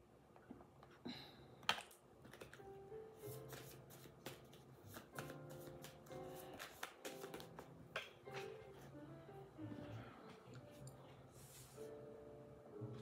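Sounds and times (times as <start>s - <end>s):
faint background music: 1.0s - 13.0s
cards being shuffled: 1.7s - 8.9s.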